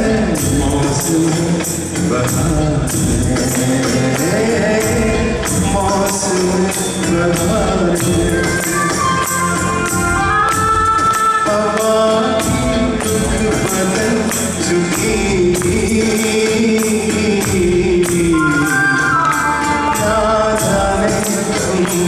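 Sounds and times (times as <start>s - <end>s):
man singing into a microphone: 0.0s - 9.9s, 10.9s - 22.0s
steady percussion beat: 0.0s - 22.0s
melody instrument: 17.6s - 21.8s.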